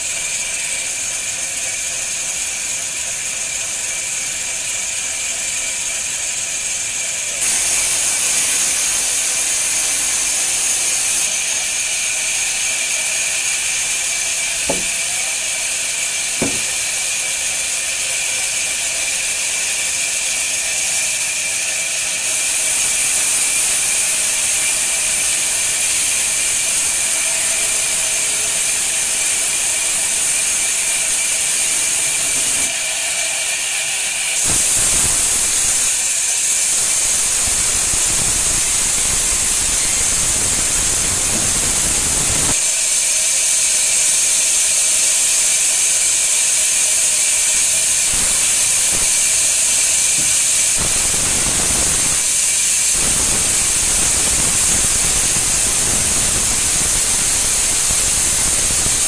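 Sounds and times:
band saw cutting through log: 0.0s - 59.0s
sharp knocks: 14.7s - 15.0s, 16.4s - 16.8s.

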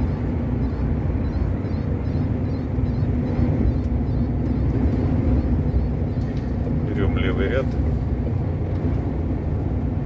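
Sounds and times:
truck engine rumbling: 0.0s - 10.0s.

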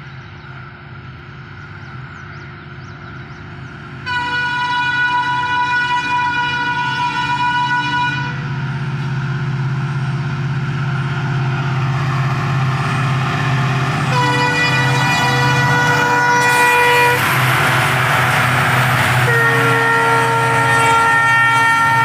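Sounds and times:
diesel locomotive engine running: 0.0s - 22.0s
train passing rush: 0.0s - 22.0s
locomotive horn blast: 4.0s - 8.7s, 13.8s - 22.0s.

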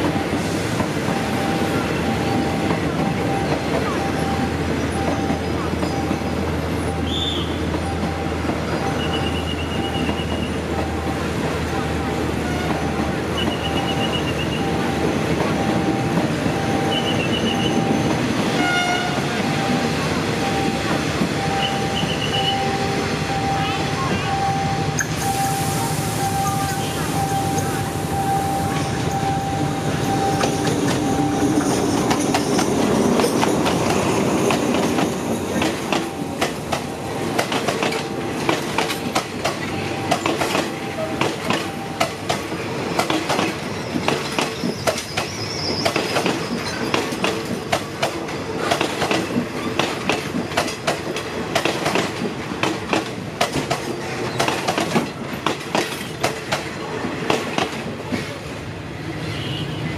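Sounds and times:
train running rumble: 0.0s - 58.6s
train wheel clicks: 30.1s - 58.4s.

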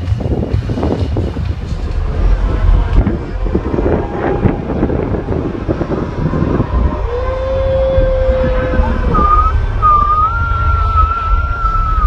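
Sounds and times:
parade crowd noise: 0.0s - 12.0s
wind buffeting microphone: 0.0s - 12.0s
long steady whistle: 8.4s - 12.0s.

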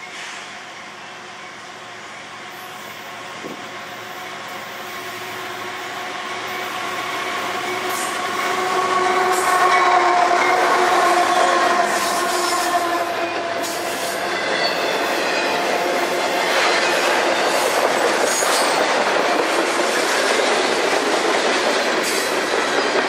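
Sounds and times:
diesel locomotives passing: 0.0s - 23.0s
train cars rolling on rails: 0.0s - 23.0s.

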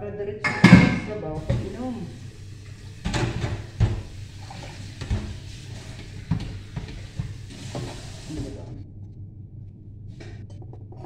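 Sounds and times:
steady low hum: 0.0s - 11.0s
plastic containers knocking: 0.5s - 2.0s, 3.1s - 4.1s.

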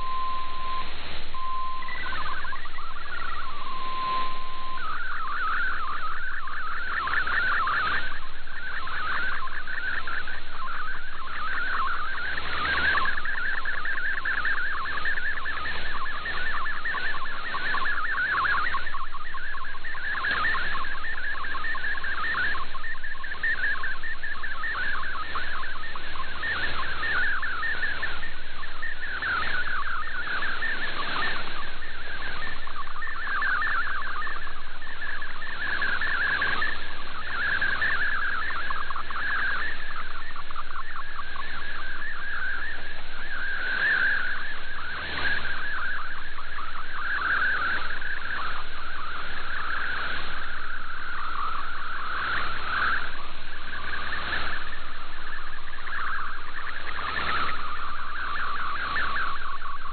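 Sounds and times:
radio band hiss: 0.0s - 59.9s
warbling digital radio tones: 0.0s - 59.9s.

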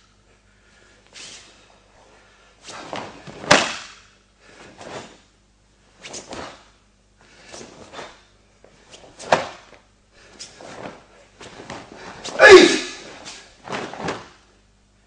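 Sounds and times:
sharp cloth cracks: 2.9s - 4.1s
cloth uniform swishing: 10.4s - 14.5s.

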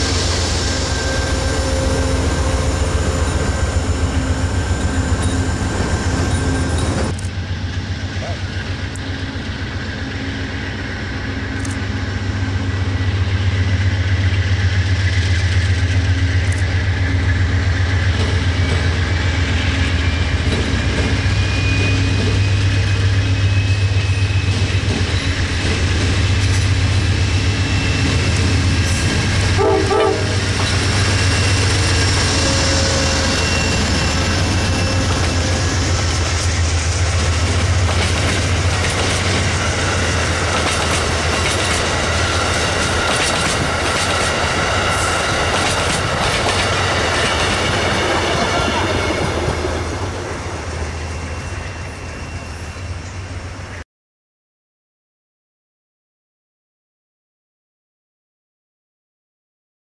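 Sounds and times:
diesel locomotive engine drone: 0.0s - 53.8s
train wheels clattering: 27.7s - 50.5s.

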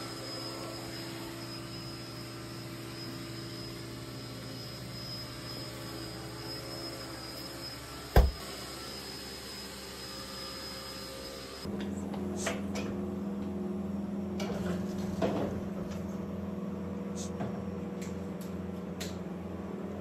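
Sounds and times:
electrical appliance hum: 7.7s - 8.5s
sharp knock: 8.2s - 8.4s.

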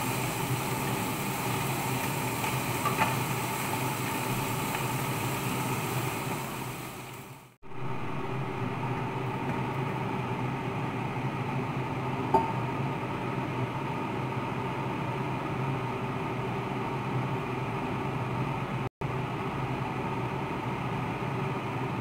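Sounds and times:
low hum: 7.6s - 11.3s.

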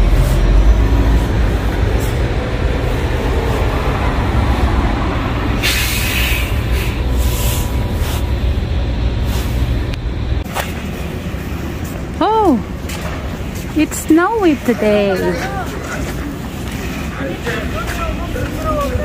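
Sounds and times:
low rumble: 0.0s - 13.8s
hissing burst: 5.6s - 8.2s.

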